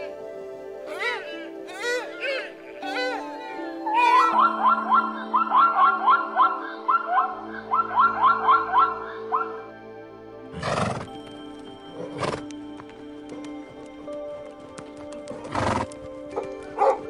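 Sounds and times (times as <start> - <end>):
background music: 0.0 - 17.0
horse snorting: 10.5 - 11.1, 15.4 - 16.0.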